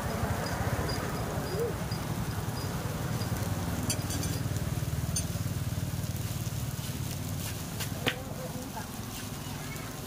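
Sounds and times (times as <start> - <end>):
low engine-like rumble: 0.0 - 10.0
utensils clinking on plates: 3.8 - 4.5.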